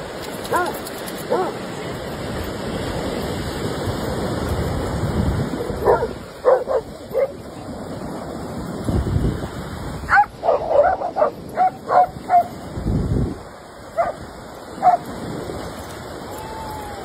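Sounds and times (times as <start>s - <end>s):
surf washing: 0.0s - 17.0s
dogs barking and yipping: 0.4s - 1.6s, 5.6s - 7.4s, 10.1s - 12.6s, 13.9s - 14.2s, 14.8s - 15.1s.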